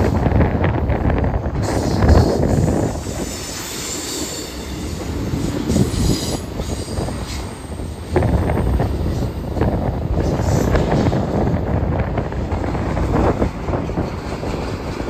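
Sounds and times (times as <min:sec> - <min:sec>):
high wheel squeal: 0:01.6 - 0:07.9.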